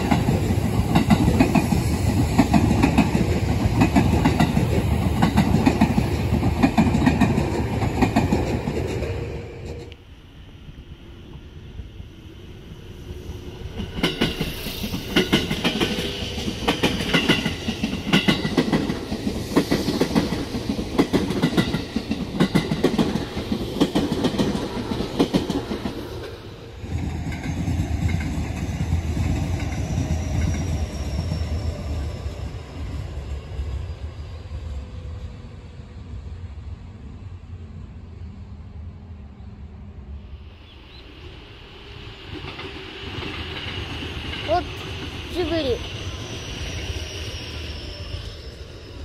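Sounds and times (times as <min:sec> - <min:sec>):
train wheels clattering over rail joints: 0:00.0 - 0:09.9, 0:13.8 - 0:30.7
distant electric train rumble: 0:00.0 - 0:49.0
faint high whine: 0:45.2 - 0:49.0.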